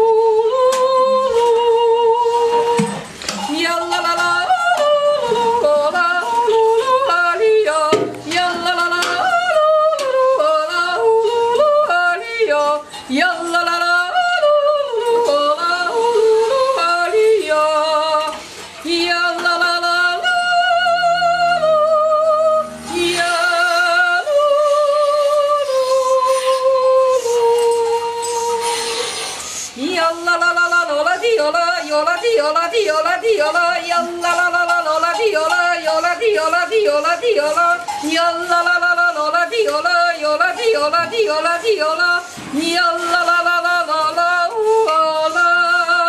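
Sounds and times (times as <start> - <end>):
woman yodeling: 0.0 - 2.8, 3.4 - 28.6.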